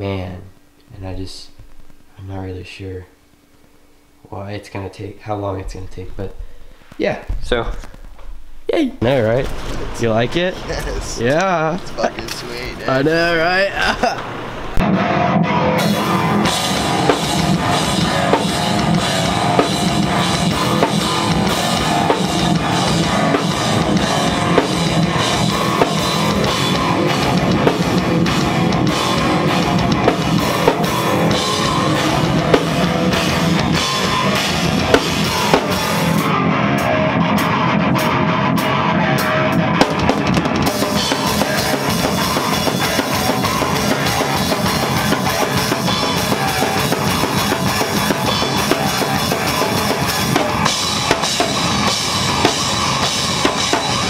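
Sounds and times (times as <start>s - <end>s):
drum kit played hard: 9.0s - 54.0s
electric guitar through amp: 14.0s - 54.0s.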